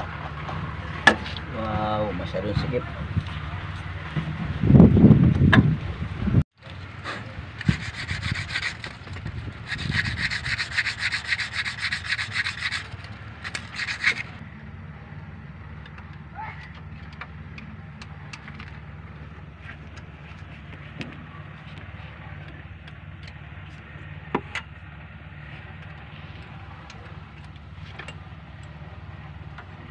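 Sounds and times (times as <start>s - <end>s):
metal rasping scrape: 7.0s - 14.4s.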